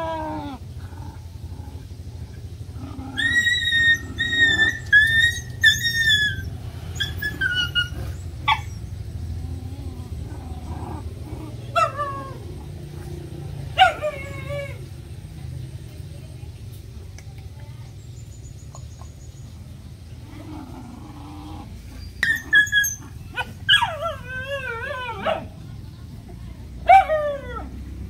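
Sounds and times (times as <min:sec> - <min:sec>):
steady low hum: 0:00.0 - 0:05.6
puppies whining: 0:02.8 - 0:12.7, 0:13.8 - 0:14.9, 0:21.1 - 0:25.5
puppy yelping: 0:03.1 - 0:08.9, 0:11.7 - 0:12.7, 0:13.8 - 0:14.8, 0:22.0 - 0:25.5.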